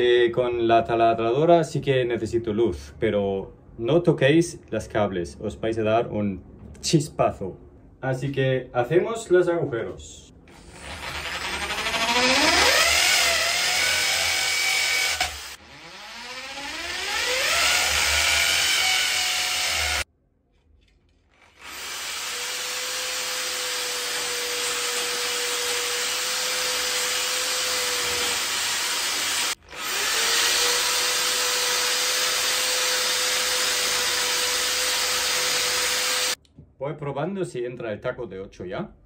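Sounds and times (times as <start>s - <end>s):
electric drill whining: 10.5s - 20.0s, 21.3s - 36.4s.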